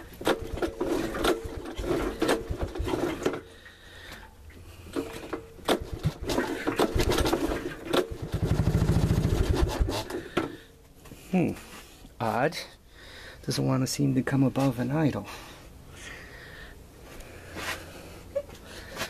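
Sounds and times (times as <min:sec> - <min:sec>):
single-cylinder engine running unevenly: 0:07.2 - 0:09.9.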